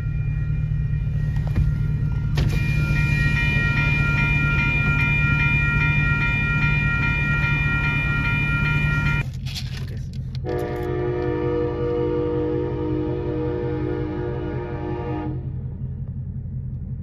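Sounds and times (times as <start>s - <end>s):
bell ringing: 0.0s - 9.2s
train rumbling past: 0.0s - 9.4s, 10.0s - 17.0s.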